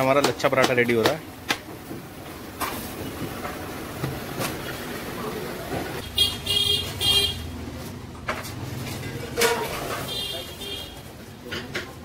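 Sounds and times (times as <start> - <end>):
road traffic rumble: 1.3 - 12.0
vehicle horn honking: 6.0 - 7.5, 10.0 - 11.0.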